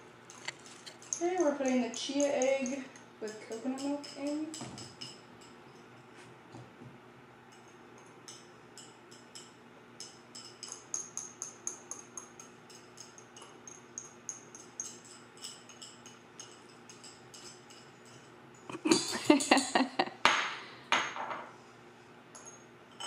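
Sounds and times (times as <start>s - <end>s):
metal spoon clinking glass bowl: 0.3s - 5.8s, 7.5s - 19.4s.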